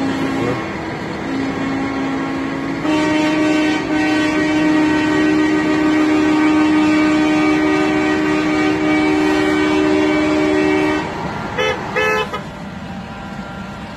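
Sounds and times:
truck air horn blast: 0:01.2 - 0:12.6
short air horn toots: 0:02.8 - 0:12.5.

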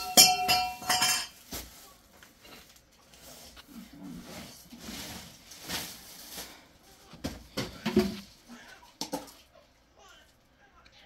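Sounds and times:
plastic containers clattering: 0:00.0 - 0:02.9, 0:03.6 - 0:08.4
plastic bags rustling: 0:00.0 - 0:08.5.

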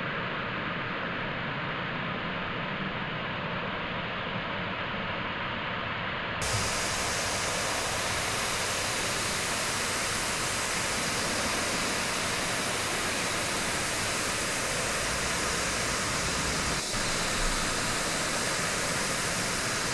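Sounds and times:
static hiss: 0:06.4 - 0:19.9.

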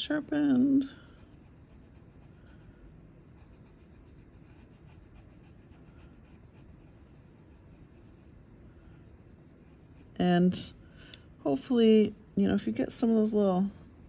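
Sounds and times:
pencil scribbling on paper: 0:00.9 - 0:10.3.

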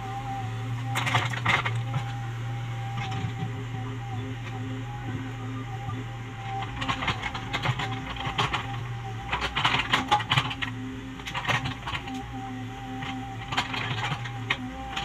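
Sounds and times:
excavator diesel engine running: 0:00.0 - 0:15.0
excavator arm clicking and clattering: 0:00.7 - 0:02.2, 0:02.8 - 0:04.7, 0:05.8 - 0:15.0.

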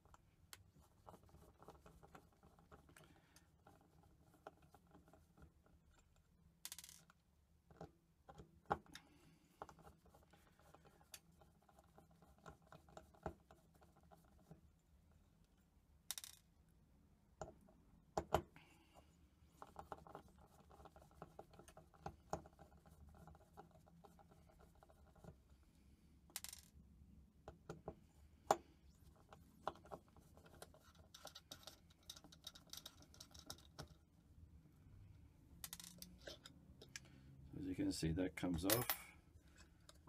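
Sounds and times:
screwdriver clicking and scraping: 0:29.6 - 0:34.0, 0:35.7 - 0:37.1.

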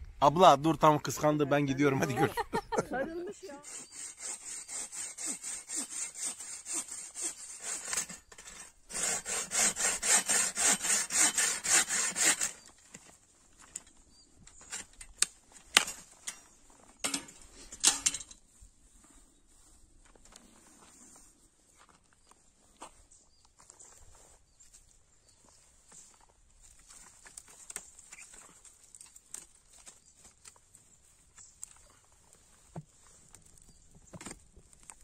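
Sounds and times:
fast rhythmic scraping strokes: 0:03.4 - 0:08.2.

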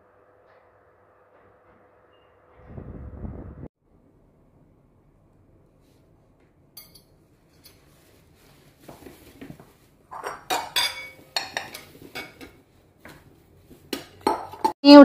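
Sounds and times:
plates and bowls clinking: 0:10.1 - 0:14.8.

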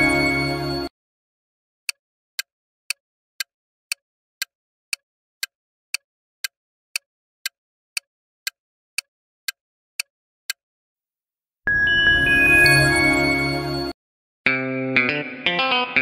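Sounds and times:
chiming jingle: 0:00.0 - 0:00.9, 0:11.7 - 0:14.0
clock ticking: 0:03.9 - 0:10.6.

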